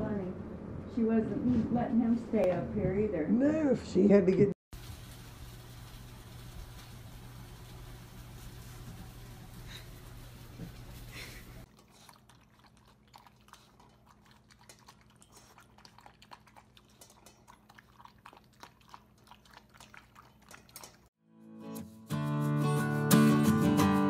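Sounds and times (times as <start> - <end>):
cat chewing food from metal bowl: 11.7 - 21.1.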